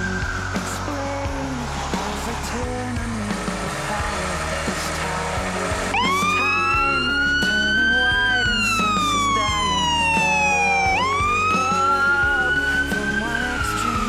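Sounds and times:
fire engine siren wailing: 0:03.5 - 0:14.0.

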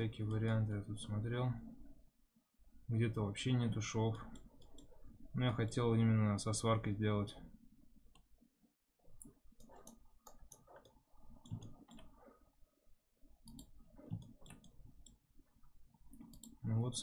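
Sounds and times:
mouse and keyboard clicking: 0:04.3 - 0:05.0, 0:09.2 - 0:12.2, 0:13.4 - 0:15.2, 0:16.1 - 0:16.6.

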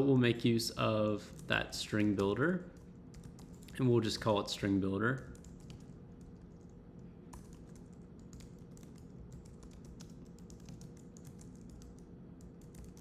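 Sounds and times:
low steady hum: 0:00.0 - 0:13.0
typing on computer keyboard: 0:01.3 - 0:03.8, 0:05.2 - 0:13.0.

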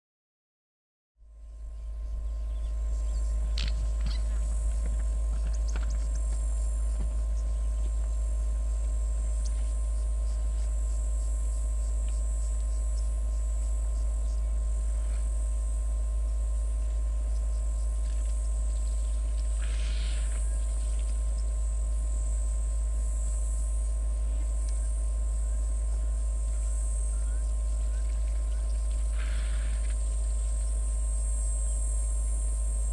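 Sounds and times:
constant low hum: 0:01.2 - 0:32.9
insects chirring: 0:01.4 - 0:32.9.

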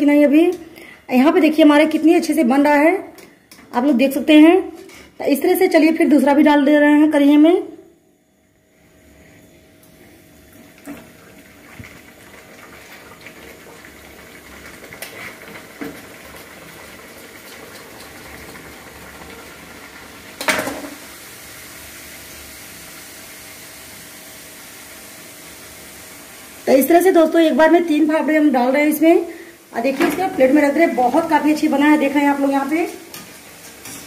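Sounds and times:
deep-frying sizzle and bubbling: 0:10.0 - 0:34.0.

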